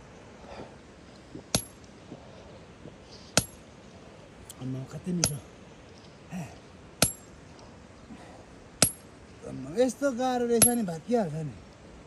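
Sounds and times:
sharp metallic clinks: 0:05.2 - 0:05.5, 0:07.0 - 0:07.4, 0:08.8 - 0:09.1, 0:10.6 - 0:11.0.

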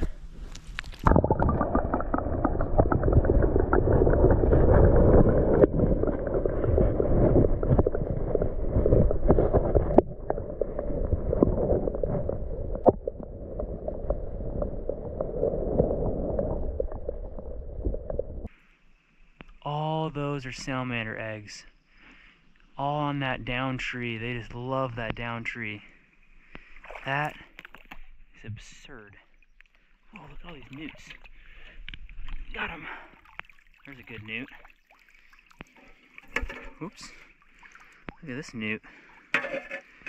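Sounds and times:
muffled underwater water rumble: 0:00.0 - 0:18.5
small underwater clicks: 0:27.5 - 0:28.2.

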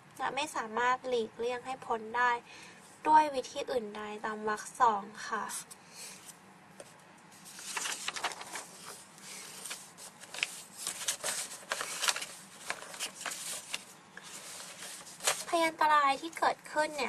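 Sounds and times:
paper rustling and sliding: 0:06.2 - 0:15.7.

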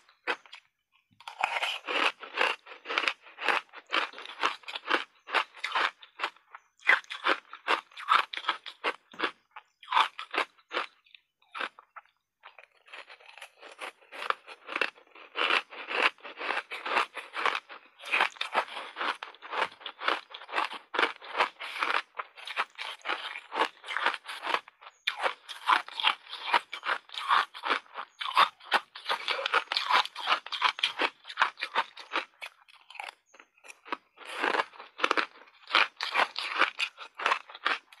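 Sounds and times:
crunching ice: 0:00.1 - 0:38.0.

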